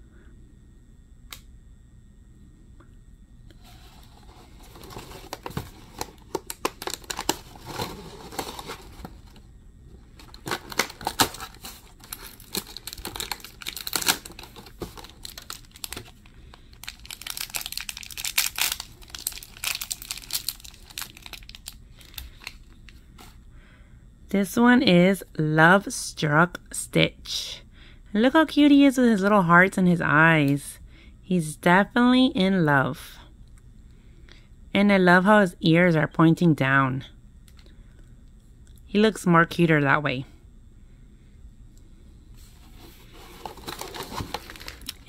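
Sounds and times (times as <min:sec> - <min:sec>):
crinkly wrapper rustling: 0:03.9 - 0:09.4, 0:10.1 - 0:23.3, 0:43.0 - 0:45.0
cardboard packaging tearing: 0:04.6 - 0:09.4, 0:10.2 - 0:16.2, 0:16.8 - 0:22.2, 0:43.2 - 0:45.0.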